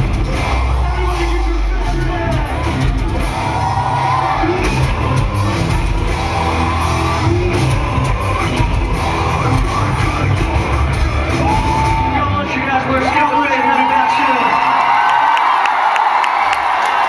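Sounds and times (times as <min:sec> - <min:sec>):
rock band playing live: 0:00.0 - 0:13.2
audience yelling and cheering: 0:00.0 - 0:17.0
person singing: 0:04.1 - 0:12.1.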